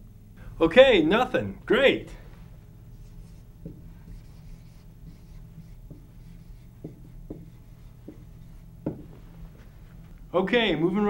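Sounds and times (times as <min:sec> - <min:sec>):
low room hum: 0:00.0 - 0:11.0
marker writing on whiteboard: 0:02.9 - 0:09.8.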